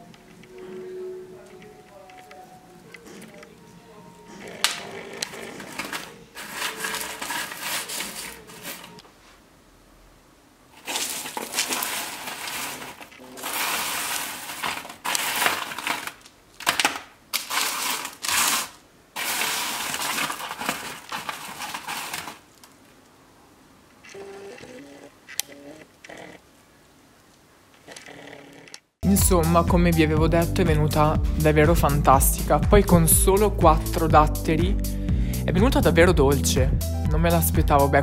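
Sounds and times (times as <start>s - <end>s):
granola clusters crunching: 10.8s - 22.6s.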